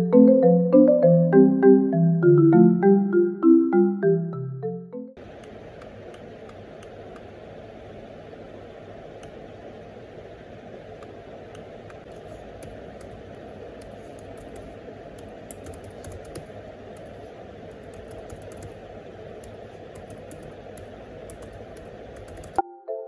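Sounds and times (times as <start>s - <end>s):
low room noise: 5.2s - 23.0s.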